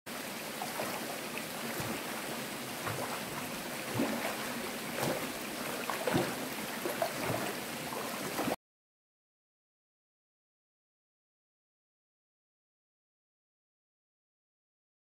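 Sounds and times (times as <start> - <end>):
small water splashes: 0.1 - 8.6
stream water flowing: 0.1 - 8.6.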